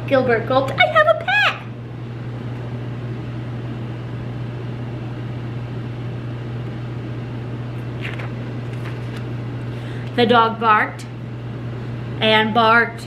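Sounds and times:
machine hum with hiss: 1.6 - 10.2.

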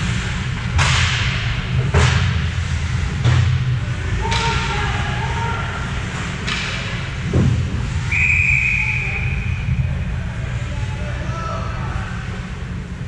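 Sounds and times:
referee whistle blast: 8.0 - 9.7.

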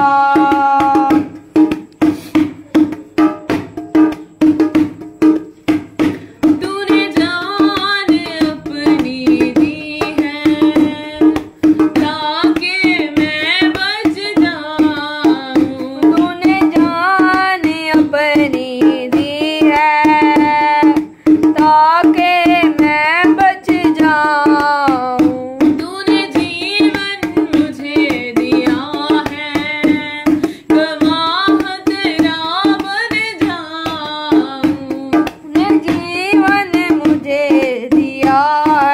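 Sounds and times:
person singing worship song: 0.0 - 1.2
quick hand-drum percussion: 0.0 - 38.9.

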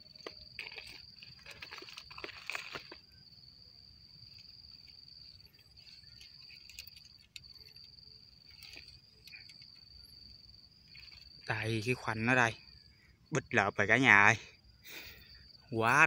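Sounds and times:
clicks and rustles: 0.0 - 3.1, 4.3 - 10.0, 10.9 - 11.5
high-pitched insect trill: 0.0 - 16.0.

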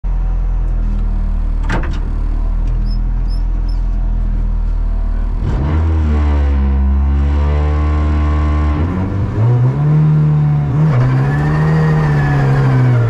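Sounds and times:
car engine idling: 0.0 - 5.5
car engine revving: 0.1 - 13.0.

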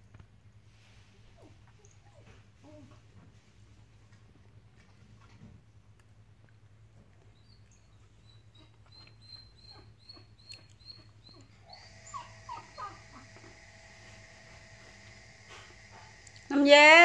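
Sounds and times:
animal whining cries: 8.6 - 14.0.

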